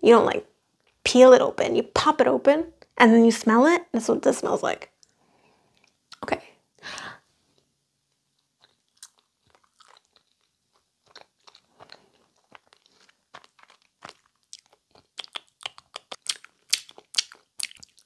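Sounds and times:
wet chewing mouth clicks: 8.5 - 18.0.

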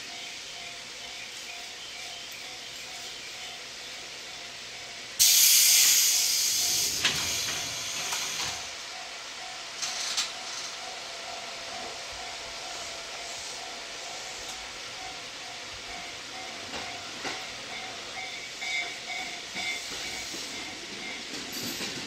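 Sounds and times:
compressed air hissing from train: 5.1 - 8.8, 12.6 - 14.8, 18.0 - 22.0
short air hisses: 5.2 - 8.6.

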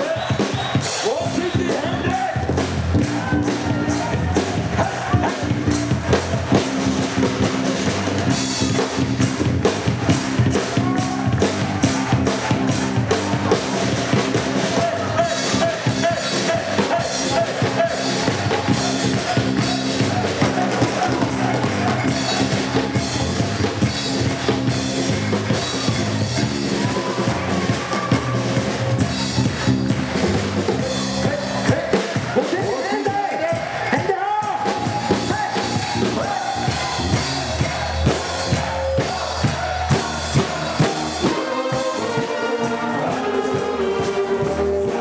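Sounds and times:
brass band playing: 0.0 - 32.7, 34.6 - 45.0
steady drum beat: 0.0 - 45.0.

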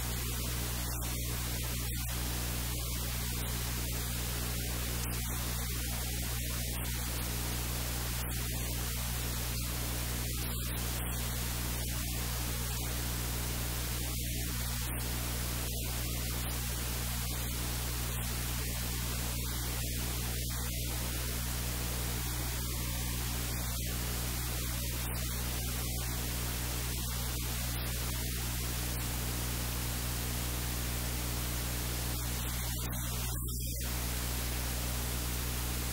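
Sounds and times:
low electrical hum: 0.0 - 35.9
static hiss: 0.0 - 35.9.

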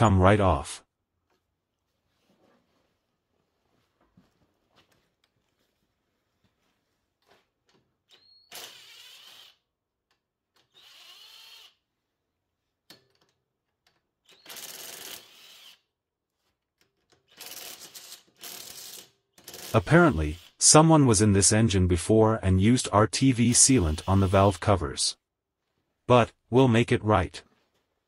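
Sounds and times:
cordless drill spinning out bolts: 8.1 - 9.6, 10.6 - 11.8, 14.2 - 15.8, 17.3 - 20.6.

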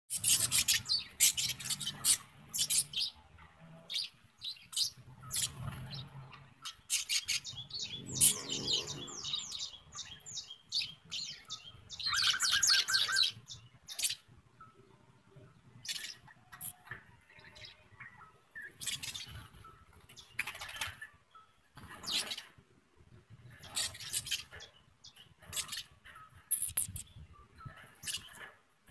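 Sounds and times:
budgerigars chirping: 0.2 - 3.2, 3.9 - 6.0, 6.6 - 14.2.

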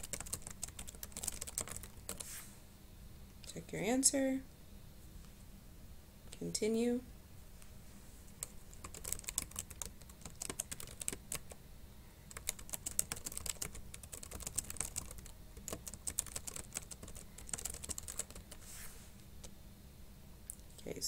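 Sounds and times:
computer keyboard typing: 0.0 - 2.2, 8.4 - 11.6, 12.3 - 18.6.

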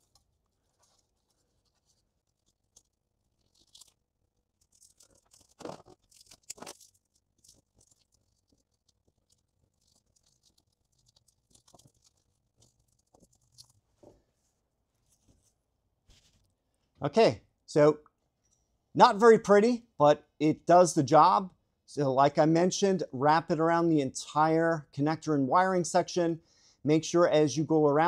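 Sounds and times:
tape scratching and crinkling: 0.0 - 14.0.

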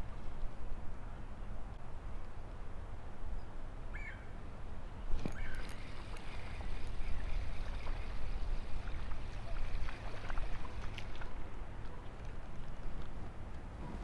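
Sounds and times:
wind rumbling on microphone: 0.0 - 14.0
fish splashing at water surface: 5.3 - 11.4.

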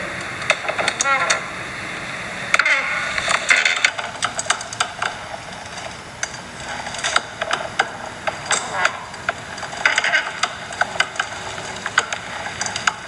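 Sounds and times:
office chair creaking: 0.4 - 1.5, 2.5 - 13.0.

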